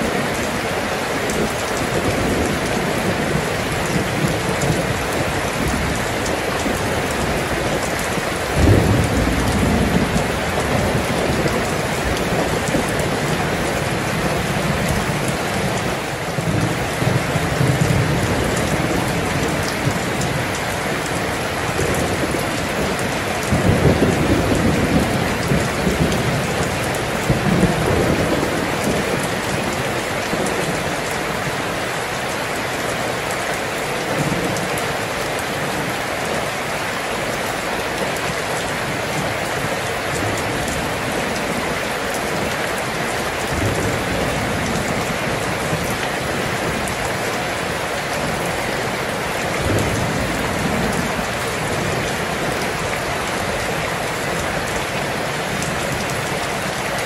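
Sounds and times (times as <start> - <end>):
steady rain: 0.0 - 57.0
thunder rumbling: 1.3 - 32.1.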